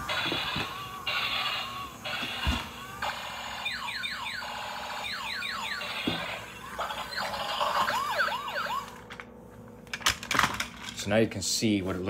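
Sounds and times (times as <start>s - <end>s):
toy electronic siren effects: 0.0s - 9.0s.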